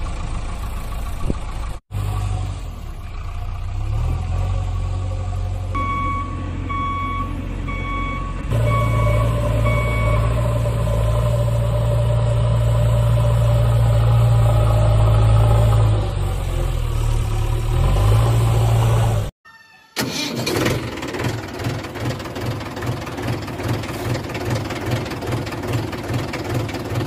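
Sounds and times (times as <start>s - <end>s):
heavy vehicle engine running: 0.0s - 19.3s, 20.0s - 27.0s
reversing alarm beeping: 5.8s - 10.8s.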